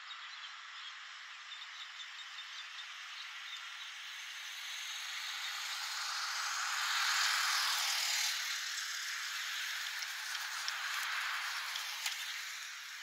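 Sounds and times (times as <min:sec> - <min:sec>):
car tyres hissing on wet road: 0:03.9 - 0:13.0.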